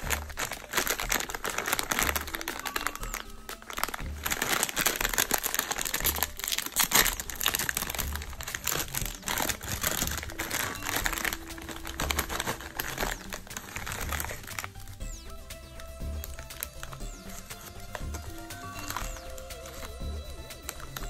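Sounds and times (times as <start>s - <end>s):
bag tearing open: 0.0s - 14.9s
snack bag crinkling: 0.0s - 15.1s, 15.8s - 21.0s.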